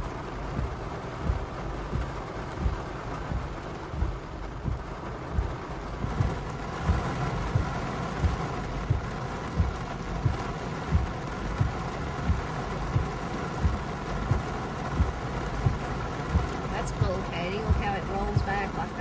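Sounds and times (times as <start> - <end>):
rain hissing on a car: 0.0 - 19.0
windshield wipers thumping: 0.0 - 19.0.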